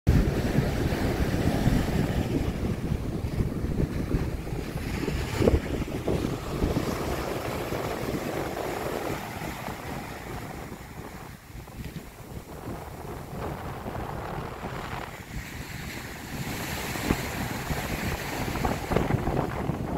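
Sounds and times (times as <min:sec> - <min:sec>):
surf breaking on beach: 0:00.1 - 0:19.9
wind buffeting microphone: 0:00.1 - 0:19.9.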